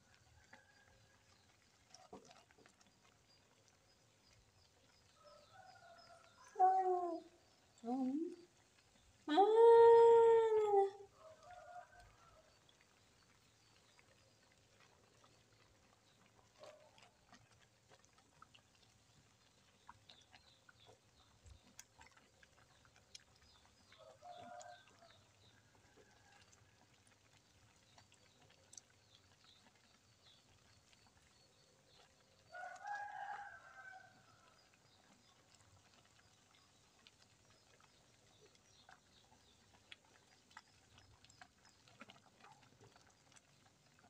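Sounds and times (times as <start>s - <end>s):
faint ticks: 11.1s - 44.0s.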